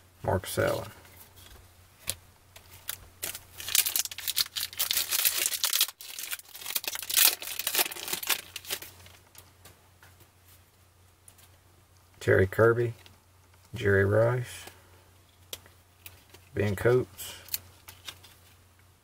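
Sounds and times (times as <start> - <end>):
foil pack tearing and crinkling: 2.8 - 9.2.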